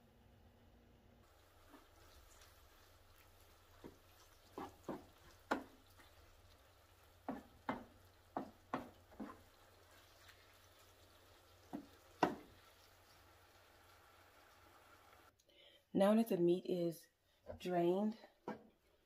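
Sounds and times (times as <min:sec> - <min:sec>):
wooden spoon scraping frying pan: 0:01.4 - 0:06.4, 0:07.2 - 0:10.9.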